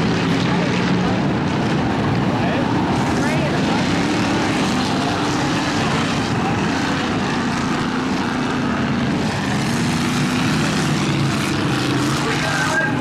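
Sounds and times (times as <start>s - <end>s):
truck engines racing past: 0.0s - 13.0s.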